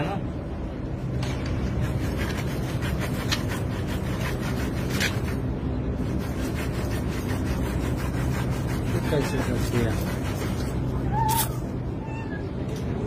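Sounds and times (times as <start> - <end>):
low machine hum: 0.0 - 13.0
rubbing on pipe: 1.7 - 11.4.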